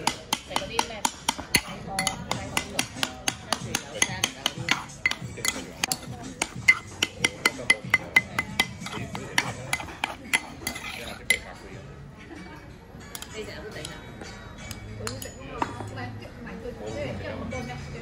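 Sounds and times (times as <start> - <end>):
metal spoon clicking on stone bowl: 0.0 - 11.4.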